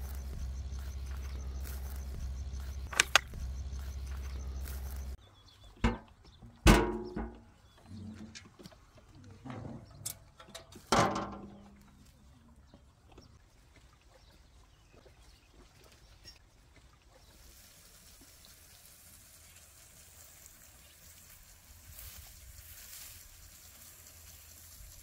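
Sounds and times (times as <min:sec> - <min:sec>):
metal lid clang: 0:06.7 - 0:07.4.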